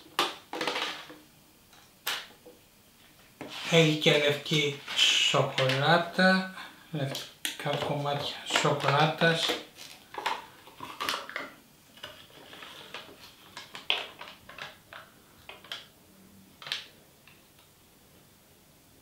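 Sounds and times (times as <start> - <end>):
plastic lid crinkling: 0.1 - 1.2, 7.1 - 15.9.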